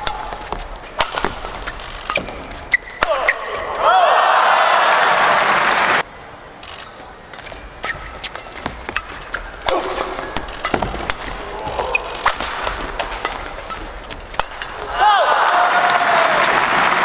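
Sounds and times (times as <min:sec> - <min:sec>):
rackets hitting shuttlecock: 0:00.0 - 0:03.8, 0:07.3 - 0:15.1
loud crowd noise: 0:03.1 - 0:06.1, 0:14.7 - 0:17.0
person shouting: 0:14.9 - 0:16.3.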